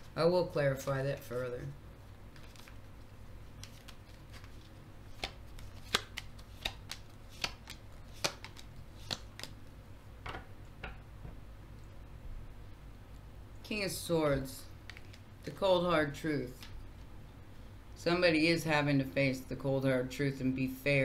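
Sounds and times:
cards being shuffled: 0:02.3 - 0:09.7, 0:14.8 - 0:15.2.

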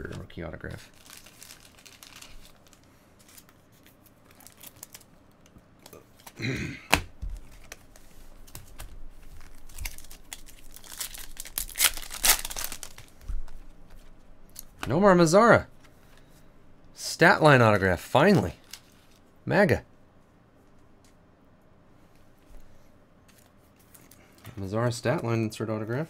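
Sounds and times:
wrapper crinkling: 0:00.0 - 0:06.4, 0:07.4 - 0:13.6, 0:18.5 - 0:19.2
wrapper tearing open: 0:00.9 - 0:05.1, 0:09.4 - 0:13.1.

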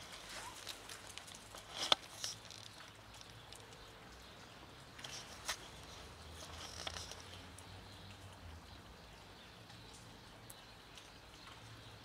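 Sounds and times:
footsteps on rubble: 0:00.0 - 0:03.6
faint outdoor background: 0:00.0 - 0:12.0.

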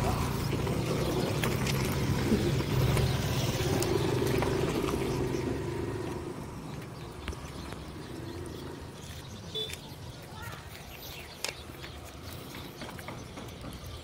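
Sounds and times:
vehicle engine running: 0:00.0 - 0:09.7.

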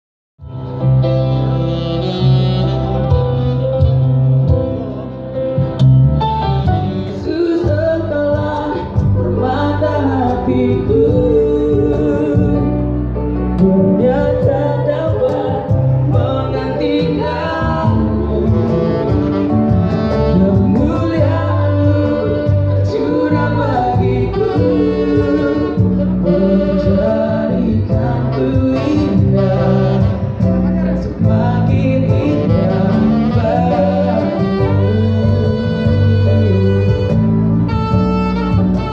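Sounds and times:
live band playing: 0:00.4 - 0:38.9
man and woman singing: 0:07.1 - 0:12.8, 0:13.6 - 0:19.2, 0:20.2 - 0:37.1.

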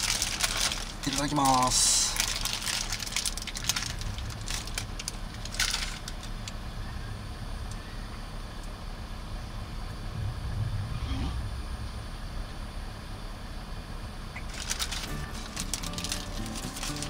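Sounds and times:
paper wrapper rustling: 0:00.0 - 0:06.6, 0:14.5 - 0:17.0
low steady rumble: 0:00.0 - 0:17.0.

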